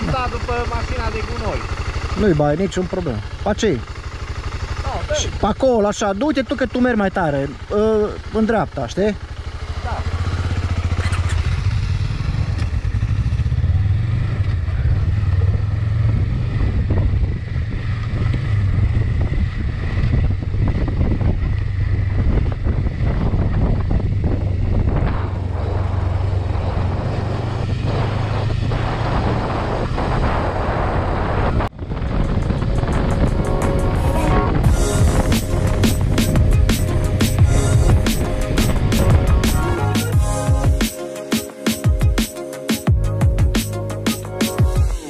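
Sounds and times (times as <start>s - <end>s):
motorcycle engine drone: 0.0s - 45.0s
wind noise: 14.8s - 40.2s.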